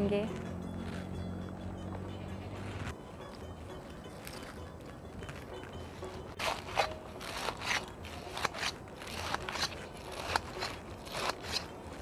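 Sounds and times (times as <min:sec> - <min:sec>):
knife cutting crisp lettuce: 0:06.4 - 0:12.0.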